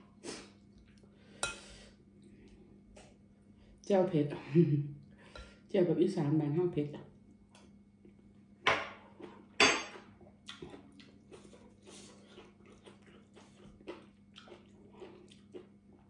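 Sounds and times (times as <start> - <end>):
soft chewing with mouth clicks: 0.5 - 1.2, 9.0 - 16.0.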